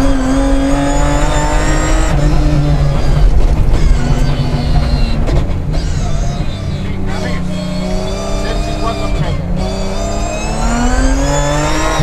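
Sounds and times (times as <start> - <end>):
rally car engine accelerating: 0.0 - 12.0.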